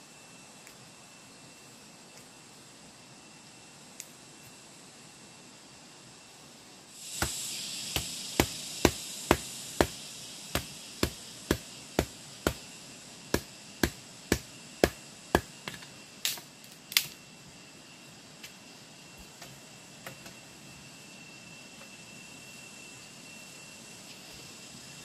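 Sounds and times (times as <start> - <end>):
machete chopping bamboo: 7.2 - 10.0, 10.6 - 12.6, 13.3 - 16.4.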